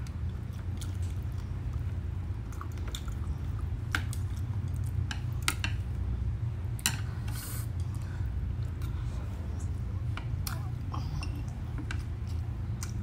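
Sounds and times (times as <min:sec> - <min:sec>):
chewing: 0:00.0 - 0:05.8, 0:10.4 - 0:13.0.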